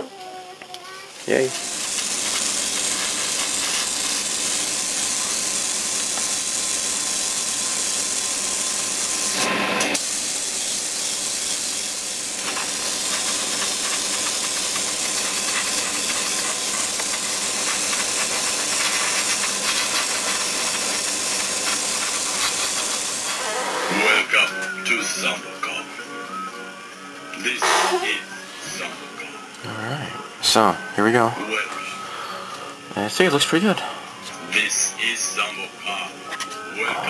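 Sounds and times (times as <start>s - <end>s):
extraction fan running: 1.1s - 25.4s
airbrush spraying hiss: 1.4s - 24.0s.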